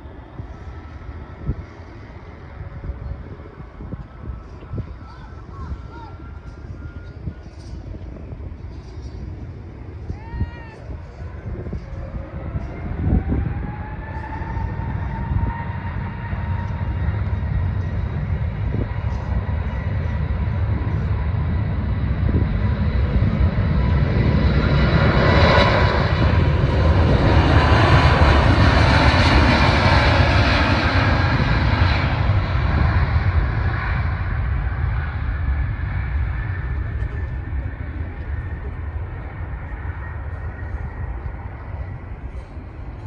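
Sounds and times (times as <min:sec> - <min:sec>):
jet engines whining: 0:00.0 - 0:43.0
jet roar of plane passing: 0:10.8 - 0:43.0.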